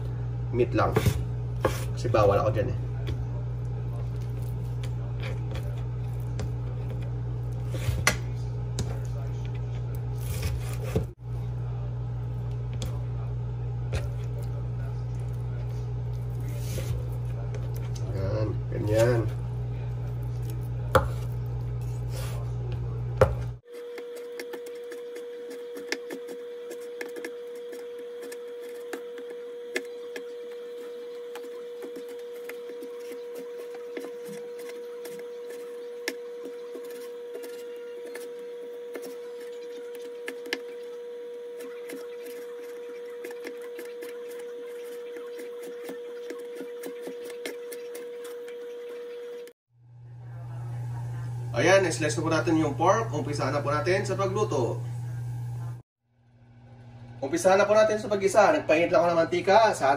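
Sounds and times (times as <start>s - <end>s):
deep hum: 49.8s - 57.3s.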